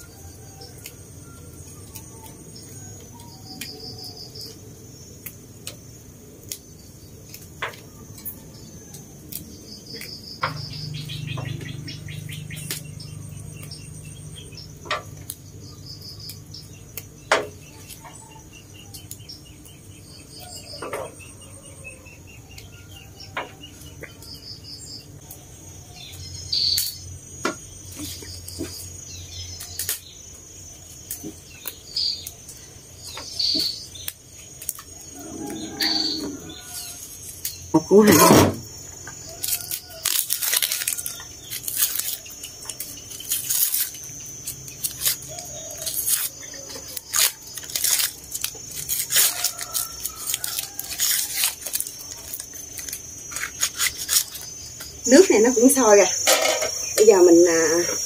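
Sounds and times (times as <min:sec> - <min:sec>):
insects chirping: 0:00.0 - 0:58.0
stems snapping: 0:29.6 - 0:30.0, 0:39.3 - 0:54.9.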